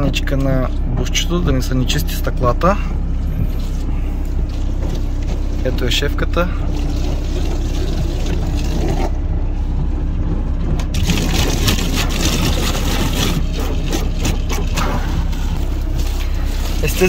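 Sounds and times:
steady low hum: 0:00.0 - 0:17.0
scrubbing and scraping on windows: 0:03.4 - 0:17.0.

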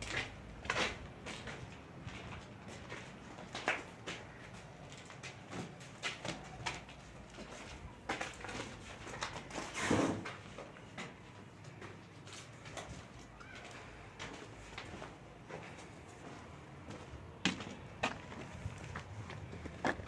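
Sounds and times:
footsteps on earth floor: 0:00.0 - 0:20.0.

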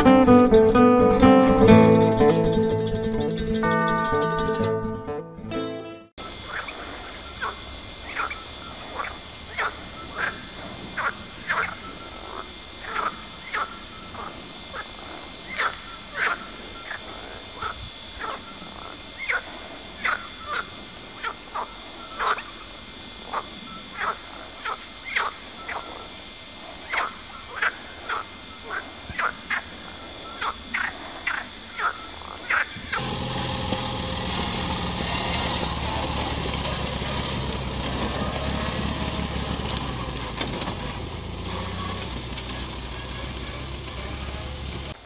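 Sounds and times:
frogs croaking: 0:06.2 - 0:33.0
high-pitched insect trill: 0:06.2 - 0:33.0.

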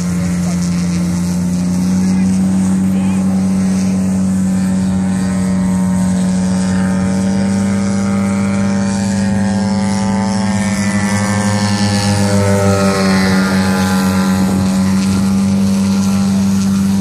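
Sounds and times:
model airplane engine and propeller: 0:00.0 - 0:17.0.

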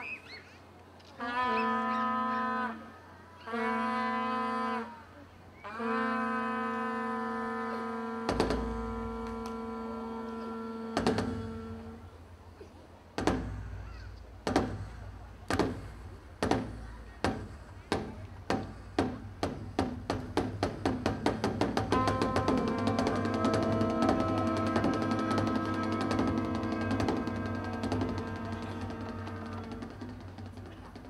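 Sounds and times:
long horn steady note: 0:01.2 - 0:05.0, 0:05.6 - 0:12.3, 0:16.6 - 0:31.0
barrel drum struck with sticks: 0:08.2 - 0:31.0.

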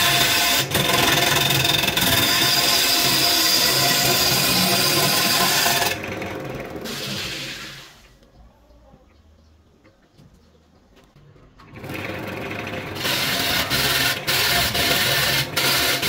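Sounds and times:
gouge scraping spinning wood: 0:00.0 - 0:07.8, 0:11.8 - 0:16.0
lathe motor whine: 0:00.0 - 0:07.8.

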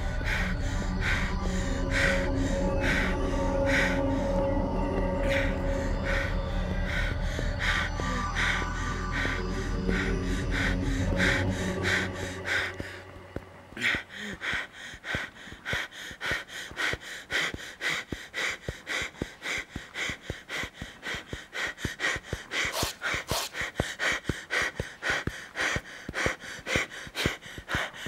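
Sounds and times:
person panting hard: 0:00.0 - 0:28.0.

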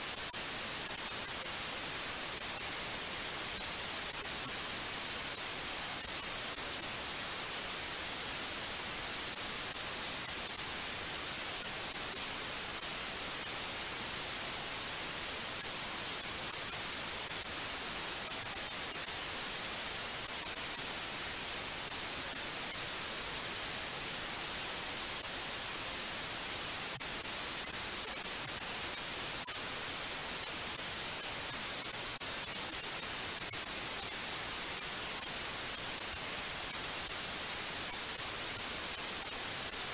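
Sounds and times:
white noise hiss: 0:00.0 - 0:39.9.

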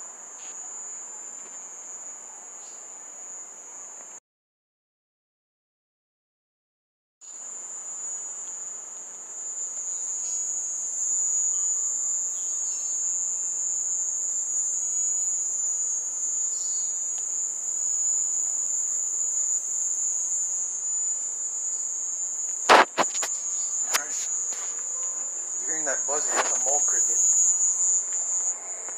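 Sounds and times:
mole cricket trilling: 0:07.2 - 0:28.9
sharp knocks: 0:22.7 - 0:23.3.

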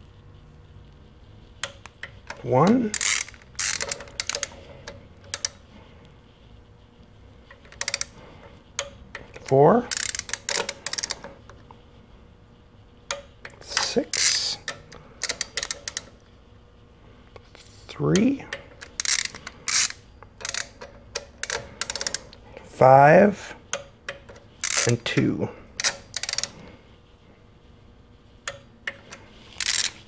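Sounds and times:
torque wrench ratchet clicking: 0:01.6 - 0:04.5, 0:05.3 - 0:05.6, 0:07.7 - 0:08.2, 0:08.8 - 0:11.2, 0:13.1 - 0:16.1, 0:18.2 - 0:22.3, 0:24.6 - 0:25.0, 0:25.8 - 0:26.6, 0:29.5 - 0:30.0.

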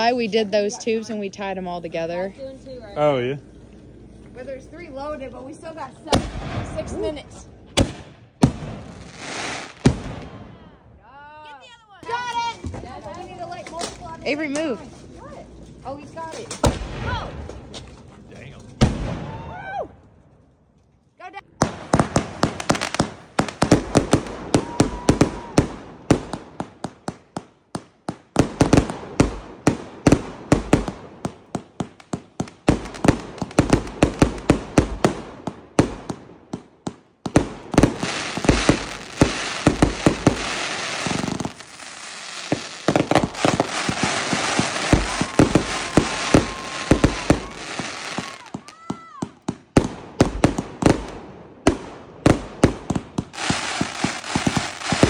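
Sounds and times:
crackling hiss of fireworks: 0:00.0 - 0:11.4, 0:21.6 - 0:55.0
firework launch thumps: 0:07.7 - 0:09.0
fireworks popping bursts: 0:21.5 - 0:55.0.

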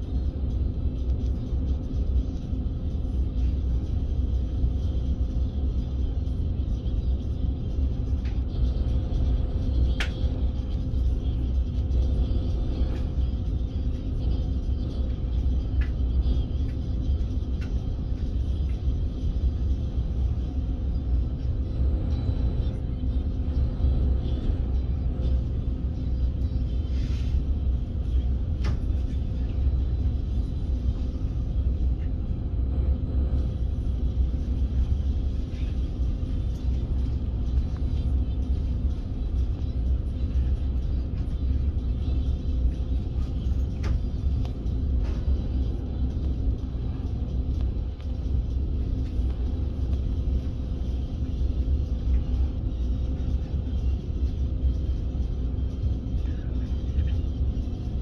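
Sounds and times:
faint hum: 0:00.0 - 0:58.0
train low rumble: 0:00.0 - 0:58.0.

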